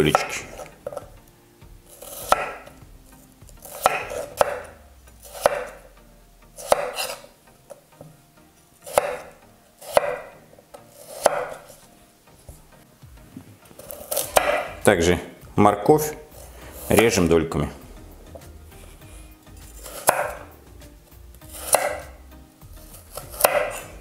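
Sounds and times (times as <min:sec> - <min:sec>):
knife slicing potatoes: 0:00.0 - 0:08.1, 0:08.8 - 0:12.6, 0:13.6 - 0:15.1, 0:16.2 - 0:24.0
knife knocking on cutting board: 0:14.4 - 0:14.7.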